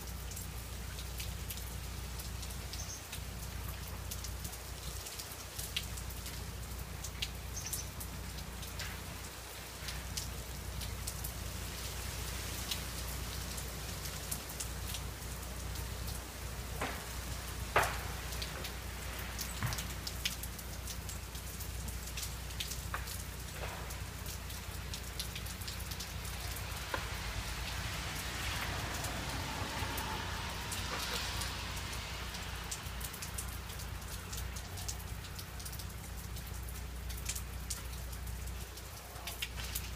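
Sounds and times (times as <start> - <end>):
freezing rain hissing on trees: 0.0 - 39.9.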